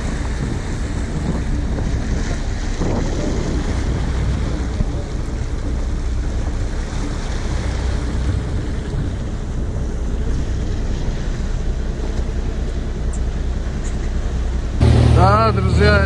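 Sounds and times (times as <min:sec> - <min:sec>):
wind on microphone: 0:00.0 - 0:11.4
boat engine running: 0:00.0 - 0:16.0
water washing along hull: 0:00.0 - 0:16.0.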